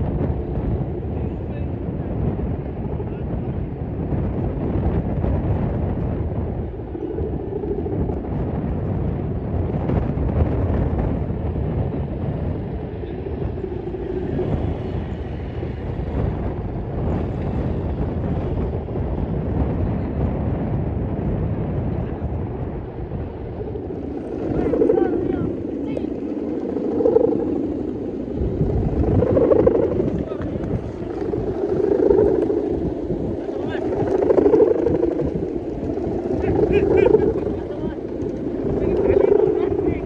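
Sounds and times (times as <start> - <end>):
wind buffeting microphone: 0.0 - 40.0.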